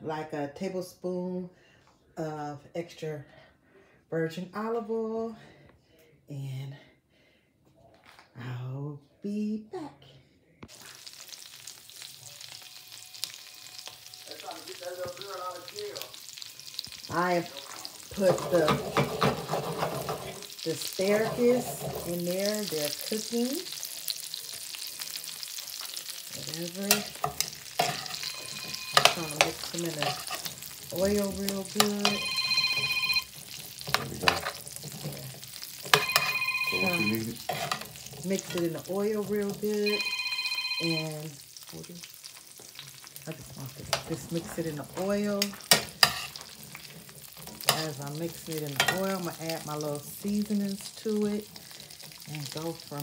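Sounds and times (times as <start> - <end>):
asparagus sizzling in a skillet: 10.7 - 40.0, 40.8 - 53.0
electronic tone: 28.1 - 29.7, 32.0 - 33.4, 36.0 - 37.4, 39.8 - 41.4.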